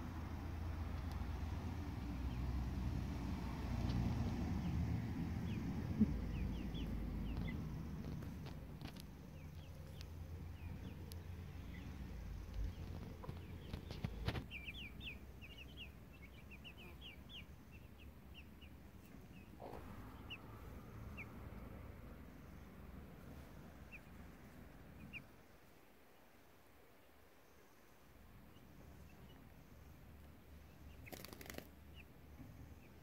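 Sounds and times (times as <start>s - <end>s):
low background rumble: 0.0s - 25.6s
chicks peeping: 4.2s - 21.6s, 23.3s - 25.4s, 28.4s - 29.6s, 30.2s - 33.0s.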